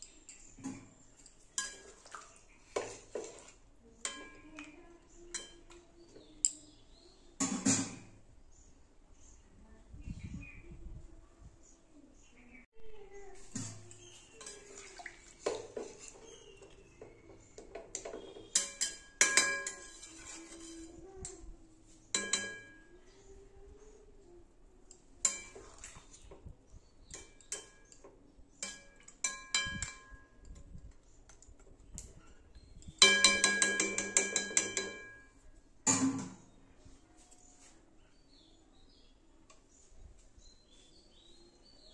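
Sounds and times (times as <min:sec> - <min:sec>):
metal utensil knocking on pan: 0:17.0 - 0:19.9, 0:22.2 - 0:22.8, 0:27.2 - 0:30.3, 0:33.0 - 0:35.3.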